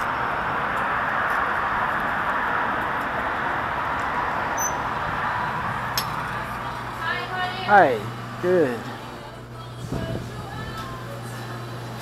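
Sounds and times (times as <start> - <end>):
rushing outdoor background noise: 0.0 - 12.0.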